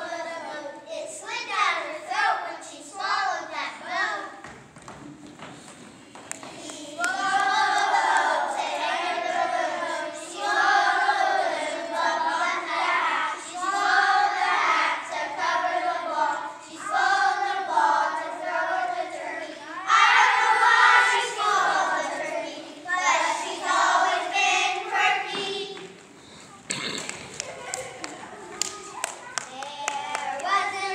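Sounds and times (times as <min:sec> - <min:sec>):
children singing in unison: 0:06.4 - 0:26.0.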